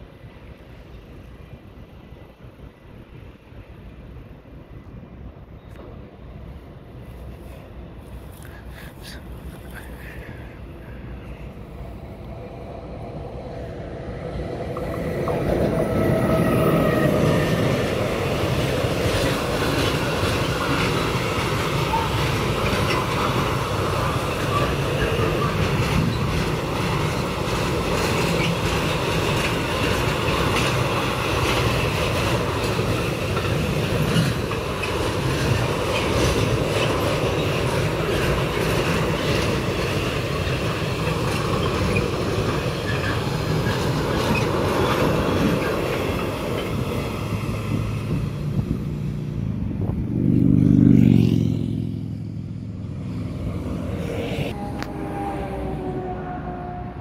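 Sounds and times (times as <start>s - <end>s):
rumble of train wagons: 0.0s - 57.0s
locomotive whine: 10.5s - 57.0s
wheels clattering over rail joints: 14.7s - 48.1s.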